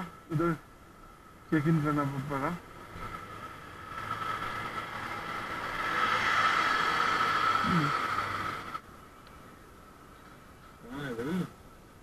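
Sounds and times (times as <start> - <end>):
motorcycle engine: 1.6 - 8.8
truck passing close: 2.3 - 8.8.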